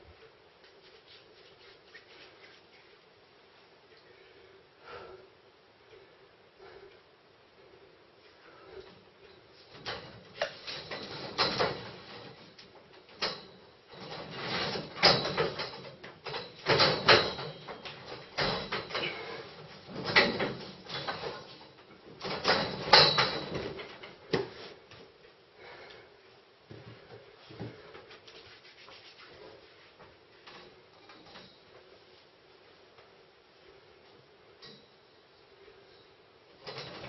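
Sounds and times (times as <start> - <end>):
metal scaffolding tubes rattling: 9.6 - 24.3, 36.6 - 37.0.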